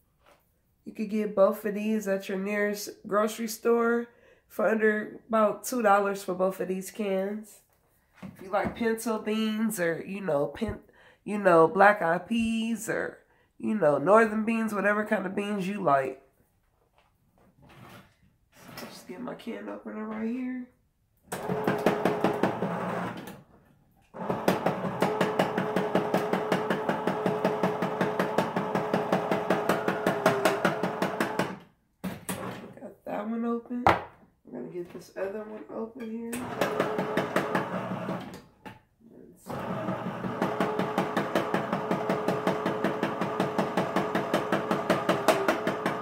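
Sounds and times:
electric can opener humming and ticking: 21.3 - 23.4, 24.2 - 31.6, 36.4 - 38.5, 39.5 - 46.0.

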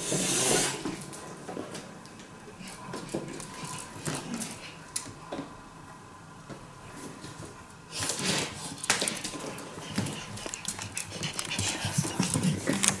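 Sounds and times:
raccoon scrabbling: 8.2 - 13.0.

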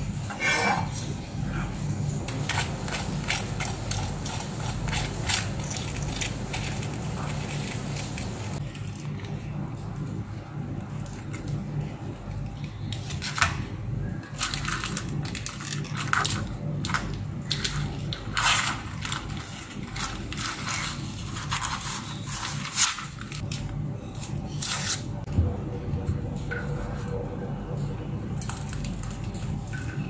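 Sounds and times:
low steady hum: 0.0 - 30.0
baking paper crinkling: 2.6 - 9.6, 14.2 - 25.1.

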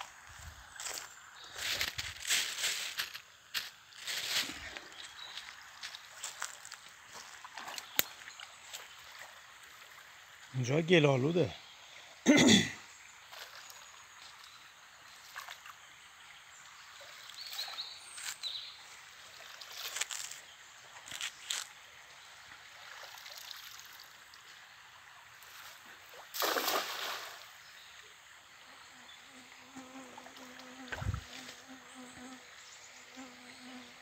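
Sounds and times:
stream water sloshing: 0.0 - 10.6, 11.6 - 28.6, 30.2 - 31.6
cast net splashing onto water: 25.6 - 27.6.

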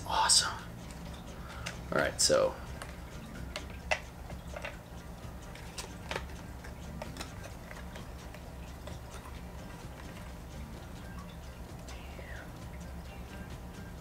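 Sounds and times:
plastic parts clicking and tapping: 2.8 - 4.8, 5.5 - 9.3.

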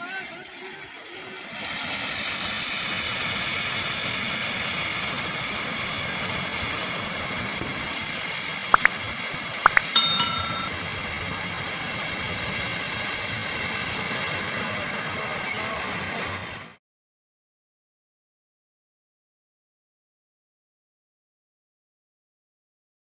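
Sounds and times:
short ringing chime: 9.7 - 10.7.

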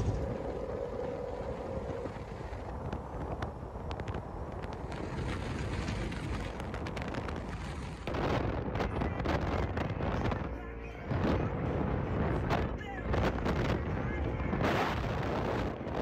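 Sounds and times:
utility vehicle rumbling on dirt: 0.0 - 3.2
wind on microphone: 0.0 - 16.0.

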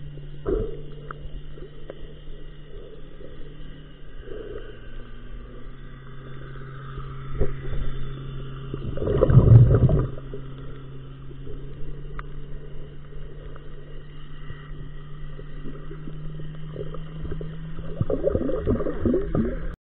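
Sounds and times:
crackling water noise: 0.0 - 19.8
low underwater drone: 0.0 - 19.8
rush of water: 8.8 - 10.3.

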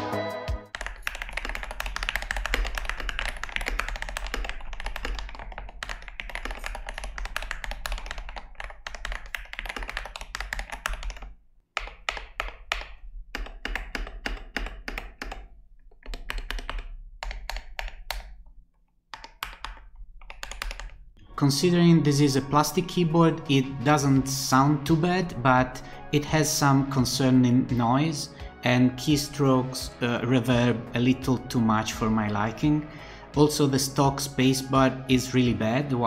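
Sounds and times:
keyboard typing: 0.0 - 18.5, 19.1 - 21.1.

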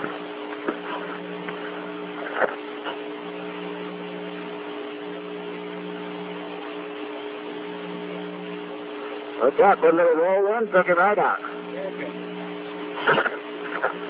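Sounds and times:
radio clicks: 0.0 - 3.1, 12.3 - 14.0
radio hiss and hum: 0.0 - 14.0.

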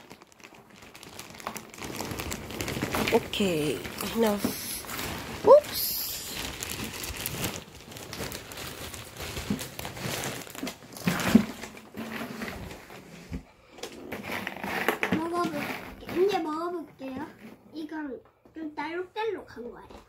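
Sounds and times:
plastic bag crinkling: 0.0 - 13.2, 14.0 - 16.4.

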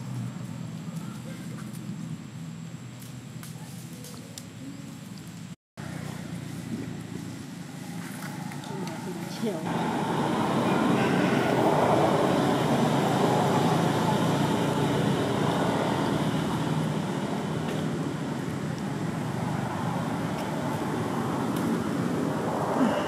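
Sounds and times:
vehicle engine running: 5.2 - 23.0.

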